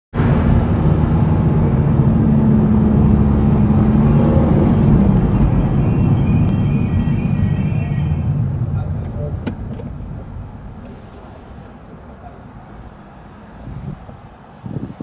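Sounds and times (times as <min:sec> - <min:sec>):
car engine and tyre rumble: 0:00.1 - 0:15.0
faint high tones: 0:04.1 - 0:08.4.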